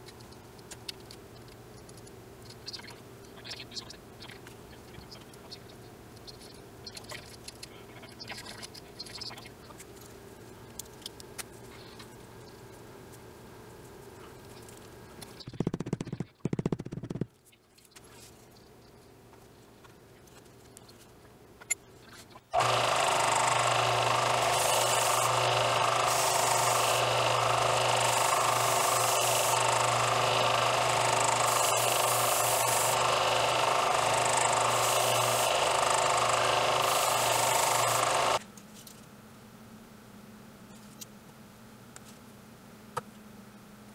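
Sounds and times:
belt sander running: 22.6s - 38.4s.

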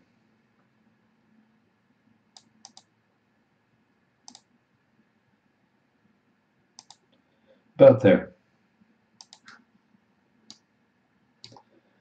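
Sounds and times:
computer mouse clicking: 2.3s - 2.9s, 4.2s - 4.5s, 6.8s - 7.2s, 9.2s - 9.6s, 11.4s - 11.7s.

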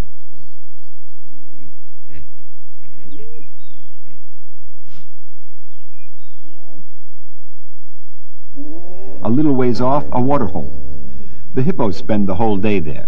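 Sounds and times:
hippos grunting and honking: 8.5s - 12.9s.

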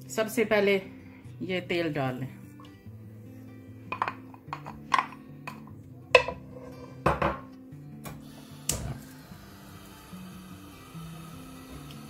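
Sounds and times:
background music: 0.0s - 12.0s
utensils knocking on frying pan: 3.9s - 7.6s.

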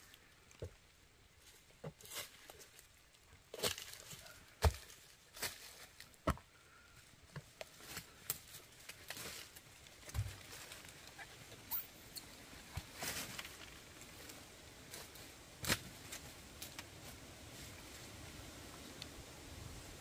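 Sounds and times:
dead leaves crunching underfoot: 0.6s - 6.3s, 7.5s - 18.3s
twigs snapping underfoot: 12.7s - 16.9s.

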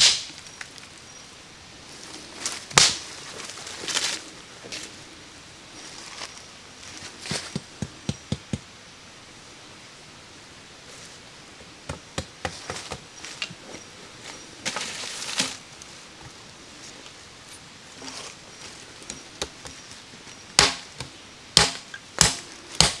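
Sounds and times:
scraping rustle: 12.5s - 20.4s.

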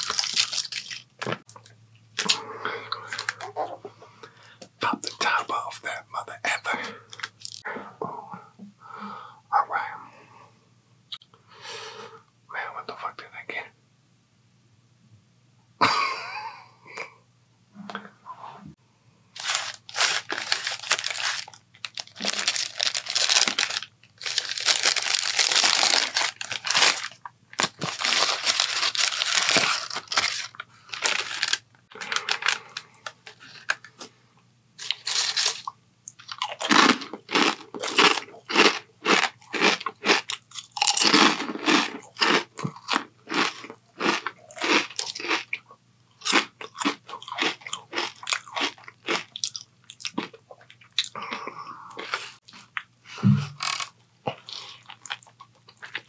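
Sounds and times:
paper wrapper crinkling: 0.0s - 1.5s, 19.4s - 34.0s, 34.8s - 36.3s.

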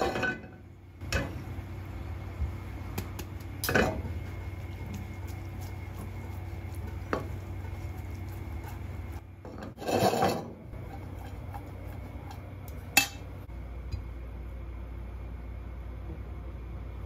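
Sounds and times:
steady hum: 0.0s - 17.0s
pan scraping on metal grate: 8.6s - 12.0s.

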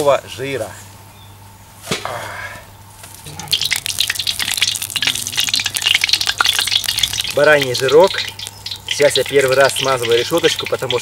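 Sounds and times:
fat sizzling and crackling in a pot: 3.1s - 11.0s.

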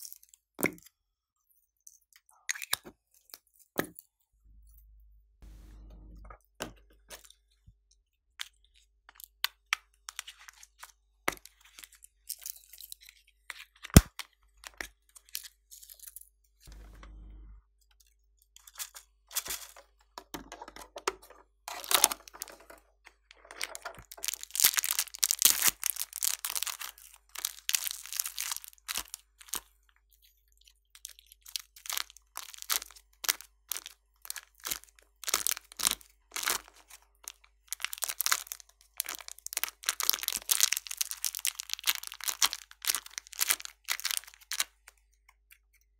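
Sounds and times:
plastic toy cases handled: 18.8s - 29.1s.

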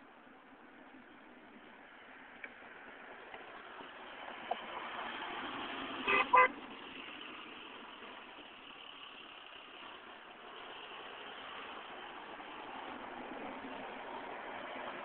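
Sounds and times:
passing road traffic: 0.0s - 15.0s
car horn toots: 6.0s - 6.6s.

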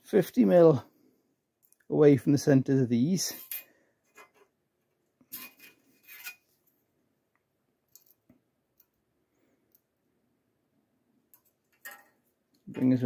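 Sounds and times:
metallic scrapes and clinks: 3.2s - 4.4s, 5.3s - 6.7s.

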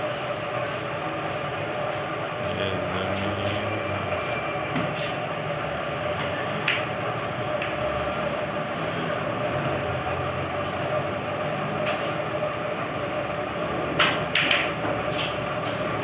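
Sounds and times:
cue striking ball: 6.2s - 7.9s, 13.9s - 15.8s
snooker balls clicking: 6.2s - 7.9s, 14.0s - 16.0s.

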